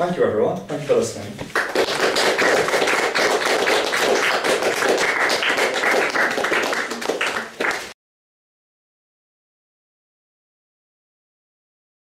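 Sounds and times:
audience applauding: 0:01.6 - 0:08.0.

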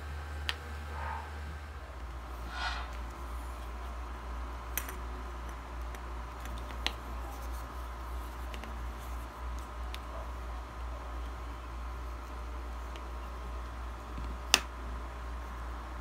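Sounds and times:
steady low hum: 0:00.0 - 0:16.0
scratchy handling noises: 0:04.7 - 0:10.4.

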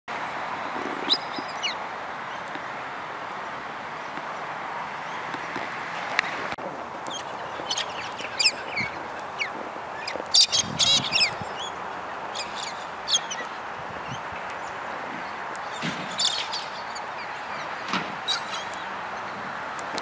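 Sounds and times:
steady background noise: 0:00.1 - 0:20.0
cockatoos screeching: 0:07.0 - 0:14.4, 0:15.6 - 0:18.9.

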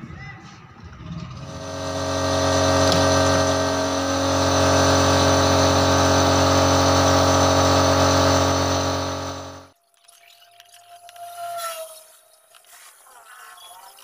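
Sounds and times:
motor humming: 0:01.4 - 0:09.7.

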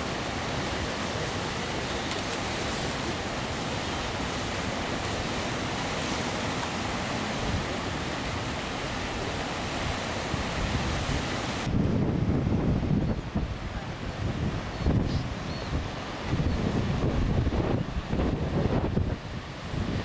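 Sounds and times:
waves breaking on rocks: 0:00.0 - 0:11.8
wind: 0:00.0 - 0:20.0
wind buffeting microphone: 0:00.0 - 0:20.0.

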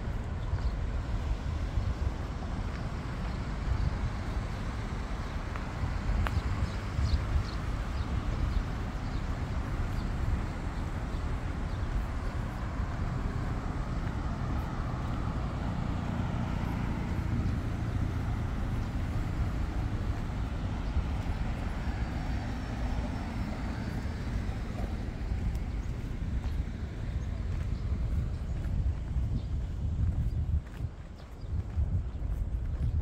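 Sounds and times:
low rumble of traffic: 0:00.0 - 0:33.0
vehicle passing: 0:07.6 - 0:30.7.

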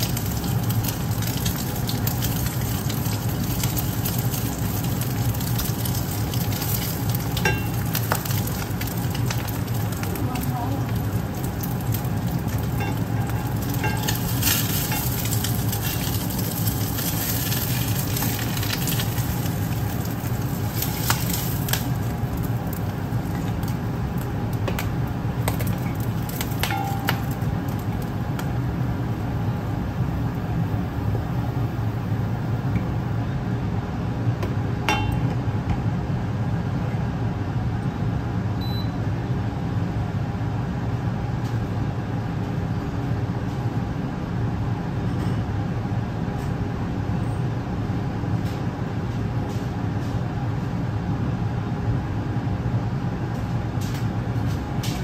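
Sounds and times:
egg sizzling in a wok: 0:00.0 - 0:29.4
steady low hum: 0:00.0 - 0:55.0.

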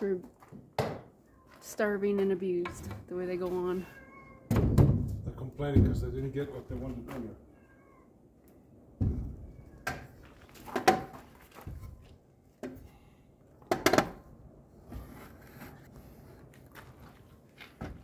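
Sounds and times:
objects knocking and clunking: 0:04.5 - 0:06.2, 0:08.9 - 0:12.9, 0:13.6 - 0:15.8.

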